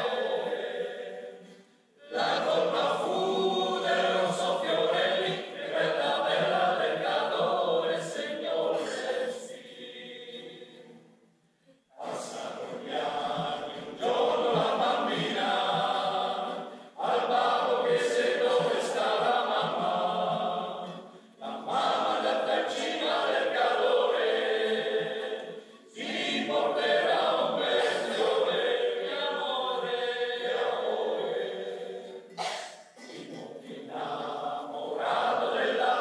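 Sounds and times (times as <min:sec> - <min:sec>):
choir singing: 0:00.0 - 0:11.2, 0:11.9 - 0:36.0.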